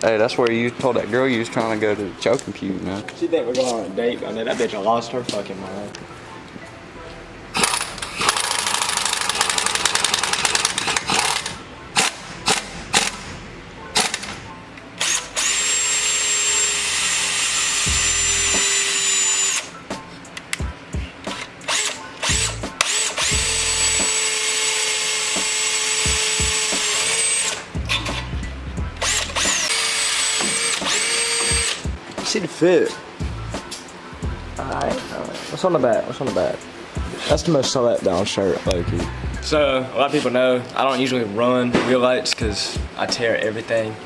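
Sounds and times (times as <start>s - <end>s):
power tool running: 7.5s - 13.3s, 14.0s - 14.4s, 15.0s - 19.7s, 21.6s - 28.3s, 29.0s - 31.9s
metal parts clicking and knocking: 7.6s - 13.2s.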